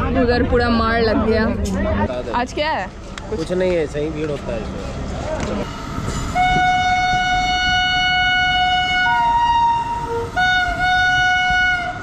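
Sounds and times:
train rumble: 0.0s - 12.0s
locomotive horn blasts: 6.2s - 12.0s.

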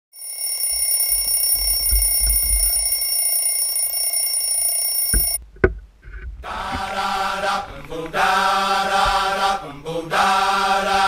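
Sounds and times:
alarm clock tone: 0.2s - 5.4s.

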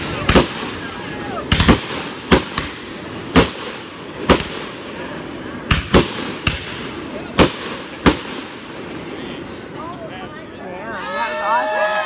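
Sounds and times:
fireworks bangs: 0.0s - 9.6s
steady background noise: 0.0s - 12.0s.

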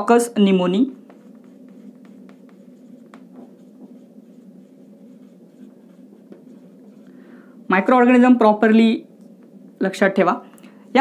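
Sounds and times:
low room hum: 0.0s - 11.0s
marker pen on whiteboard: 0.4s - 8.3s, 9.3s - 10.0s.

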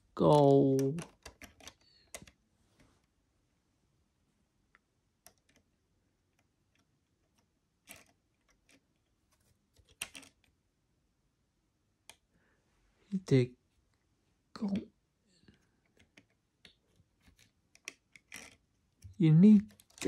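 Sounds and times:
plastic pieces clicking: 0.2s - 2.4s, 6.3s - 9.1s, 9.8s - 10.5s, 15.5s - 20.0s.

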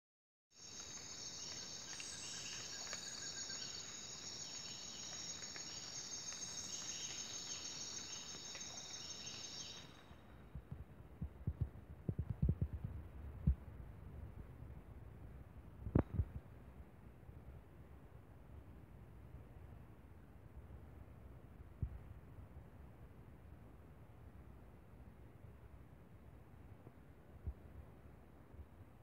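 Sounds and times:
high-pitched insect chorus: 0.6s - 10.2s
water trickling over stones: 0.6s - 10.2s.

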